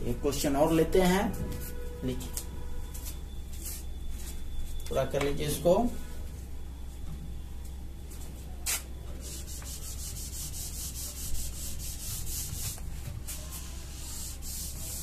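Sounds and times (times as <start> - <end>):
duster rubbing on whiteboard: 8.7 - 15.0.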